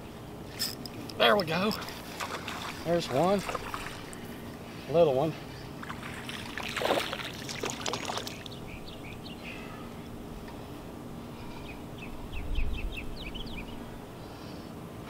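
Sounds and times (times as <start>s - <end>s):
bird chirping: 7.9s - 10.0s, 11.5s - 14.4s.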